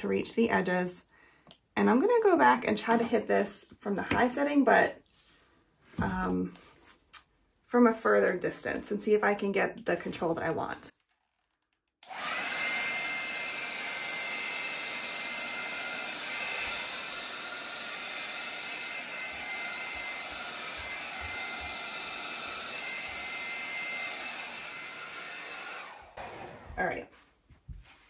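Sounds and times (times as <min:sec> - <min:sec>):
hair dryer running: 0:12.0 - 0:28.0.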